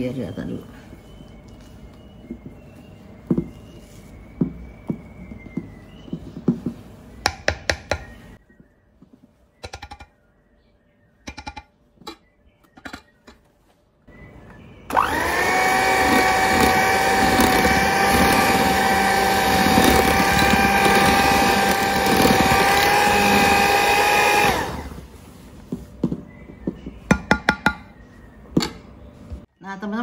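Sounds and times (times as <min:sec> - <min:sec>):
electric hand mixer whining: 0:14.9 - 0:25.1.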